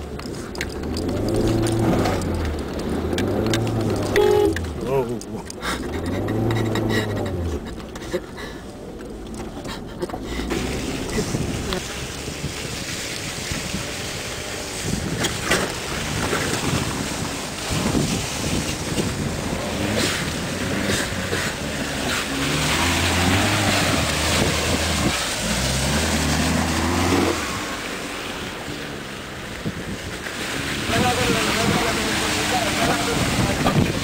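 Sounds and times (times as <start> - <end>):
vehicle engines driving: 0.0 - 34.0
wind rumbling on microphone: 10.6 - 34.0.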